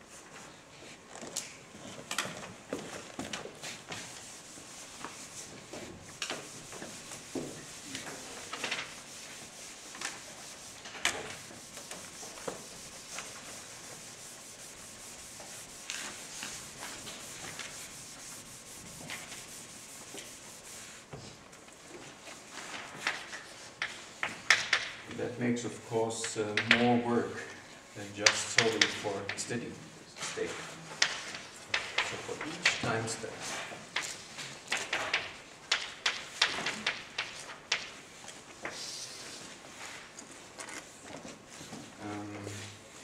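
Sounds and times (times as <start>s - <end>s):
eraser wiping chalkboard: 2.7s - 24.1s.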